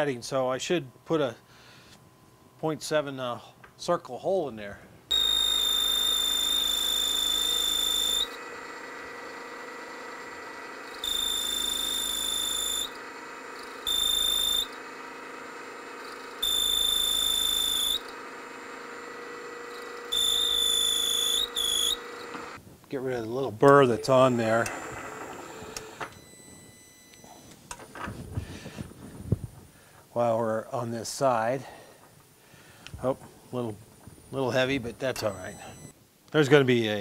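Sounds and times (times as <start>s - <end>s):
boring bar squealing: 5.1s - 8.4s, 10.8s - 14.8s, 16.0s - 18.2s, 19.6s - 22.6s
milling machine humming: 5.1s - 22.6s, 23.7s - 26.2s.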